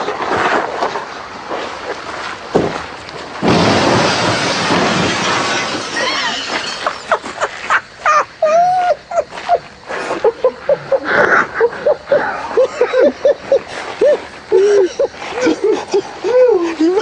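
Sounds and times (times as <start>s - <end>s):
loud crashing and breaking: 2.6s - 7.6s.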